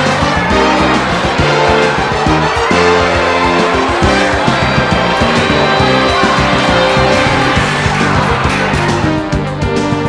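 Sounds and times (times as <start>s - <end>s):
music with steady beat and bass: 0.0s - 10.0s.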